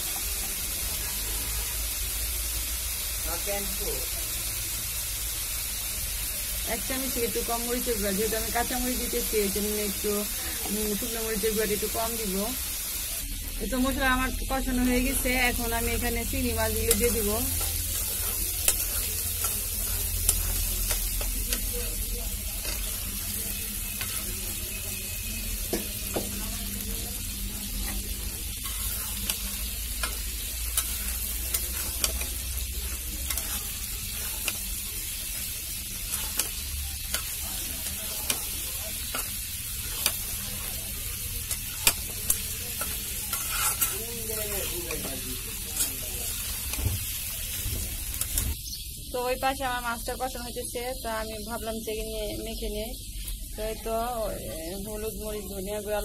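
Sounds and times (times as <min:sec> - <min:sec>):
prawns sizzling in oil: 0:00.0 - 0:56.0
metal spatula scraping pan: 0:16.8 - 0:21.6, 0:27.8 - 0:34.6, 0:36.0 - 0:37.4, 0:42.7 - 0:45.2.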